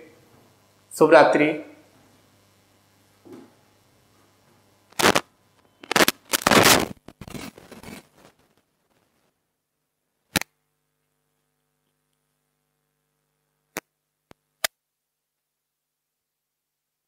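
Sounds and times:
cloth rubbing on microphone: 5.0s - 9.4s.

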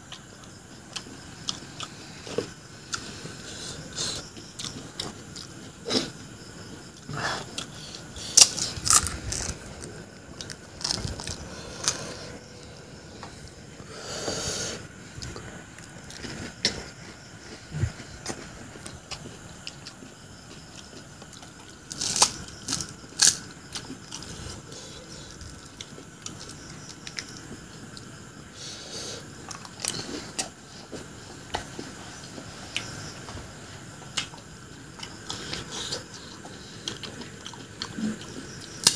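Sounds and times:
crisp shells crunching and chewing: 7.5s - 12.2s, 20.9s - 24.3s.

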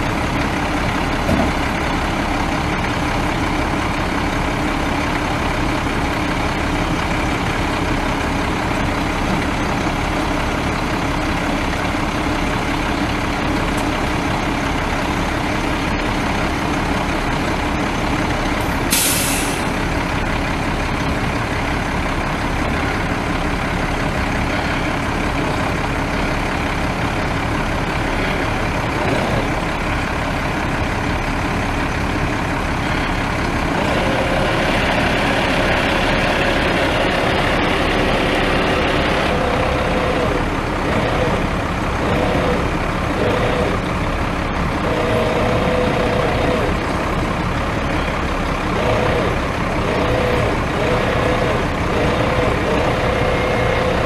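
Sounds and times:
diesel truck engine running: 0.0s - 54.0s
air brake hiss: 18.9s - 19.7s.

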